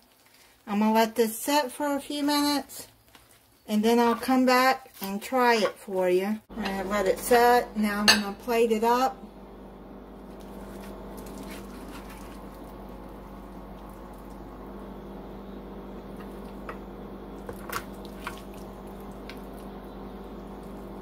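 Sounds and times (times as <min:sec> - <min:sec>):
steady background hum: 0:00.4 - 0:21.0
spoon squishing baked pasta: 0:10.3 - 0:14.4, 0:16.1 - 0:19.8.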